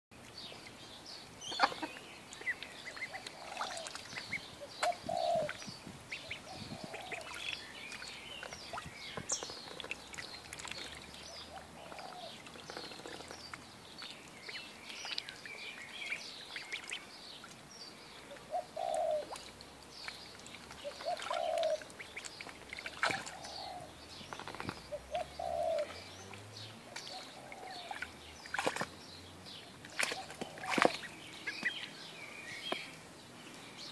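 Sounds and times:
small water splashes: 0.2s - 32.0s
ducklings peeping: 1.4s - 17.6s, 18.4s - 23.9s, 29.8s - 33.0s.

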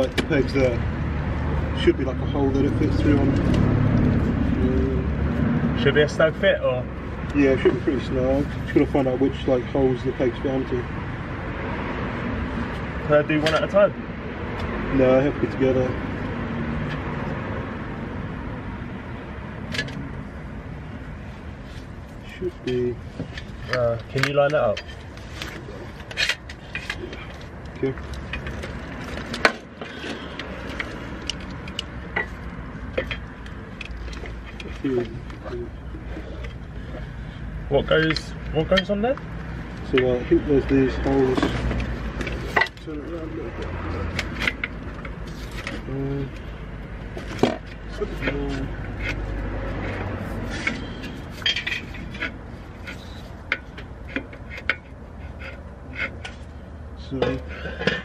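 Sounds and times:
metallic clicks and knocks: 22.7s - 35.6s, 43.6s - 45.9s.

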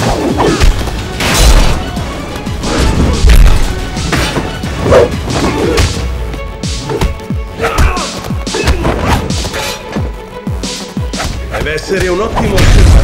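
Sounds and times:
background music: 0.0s - 13.0s.

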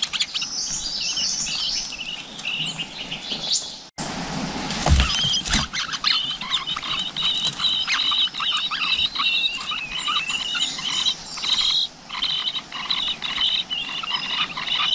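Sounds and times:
chicks begging high chattering: 5.0s - 14.9s.

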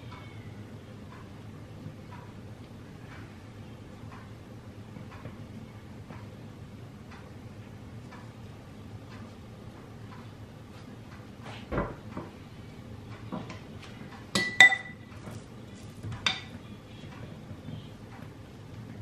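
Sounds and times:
metal spoon clinking glass bowl: 14.4s - 15.0s.

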